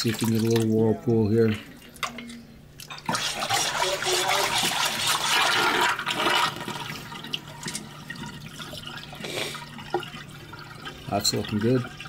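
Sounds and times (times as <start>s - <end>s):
water rushing down sink drain: 2.9s - 12.0s.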